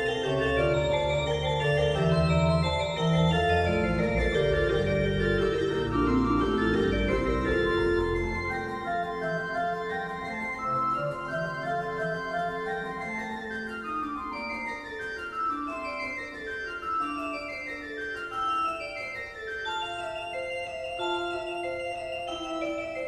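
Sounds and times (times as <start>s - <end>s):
keyboard melody: 0.0s - 23.0s
organ-like keyboard chords: 0.0s - 23.0s
bass: 0.1s - 8.6s.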